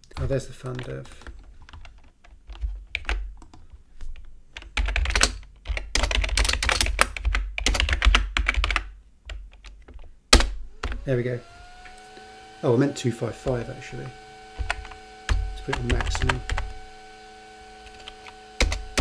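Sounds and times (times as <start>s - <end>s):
typing on a computer keyboard: 0.0s - 3.6s, 4.6s - 10.1s, 17.9s - 19.0s.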